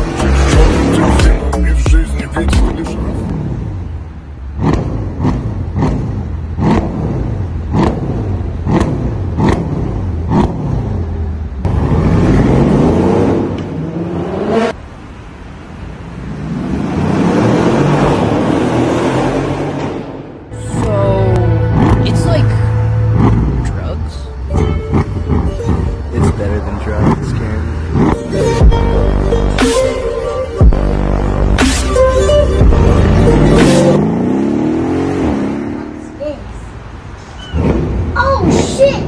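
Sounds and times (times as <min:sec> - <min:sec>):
car engine revving with cracks: 0:00.0 - 0:14.8, 0:16.3 - 0:21.0, 0:21.7 - 0:22.3, 0:22.9 - 0:23.8, 0:24.5 - 0:29.0, 0:30.7 - 0:36.1, 0:36.7 - 0:39.0.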